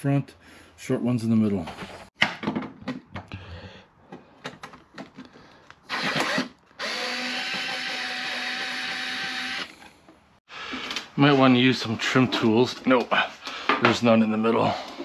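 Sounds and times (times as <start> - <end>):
handling clicks and knocks: 4.1 - 5.8
power drill whining: 5.9 - 10.0.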